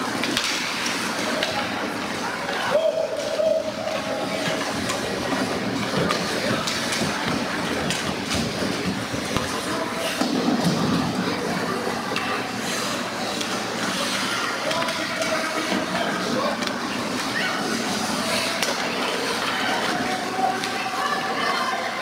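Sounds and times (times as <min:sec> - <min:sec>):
sticks and puck clacking: 0:00.1 - 0:21.3
skates scraping ice: 0:00.1 - 0:21.7.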